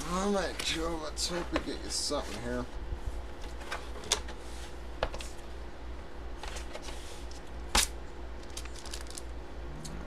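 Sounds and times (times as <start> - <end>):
low steady hum: 0.0 - 10.0
plastic packaging rustling: 8.4 - 9.3.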